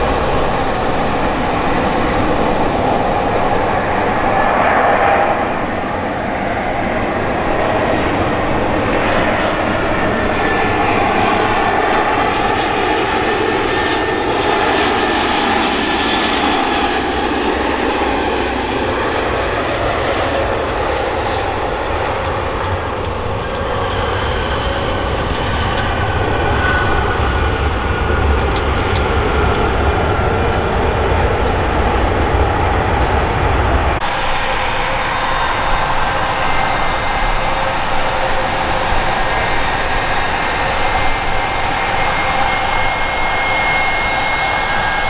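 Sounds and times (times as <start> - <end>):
jet engines rumbling: 0.0 - 45.0.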